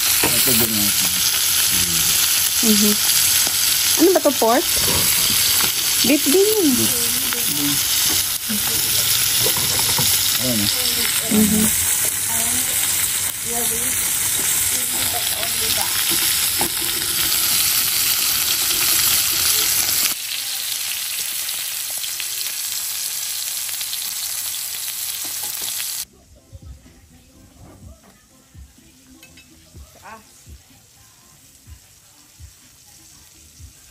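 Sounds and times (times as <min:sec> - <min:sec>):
steaks sizzling in a frying pan: 0:00.0 - 0:26.1.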